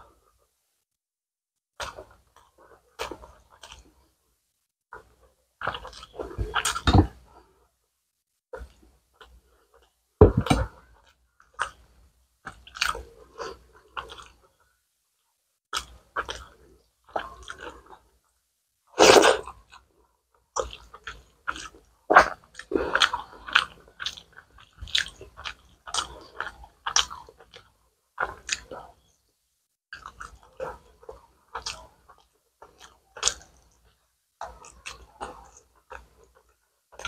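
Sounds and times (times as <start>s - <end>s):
wet chewing and smacking: 1.8s - 4.0s, 5.0s - 7.1s, 12.4s - 14.5s, 15.8s - 18.1s, 20.5s - 28.9s, 29.9s - 37.0s.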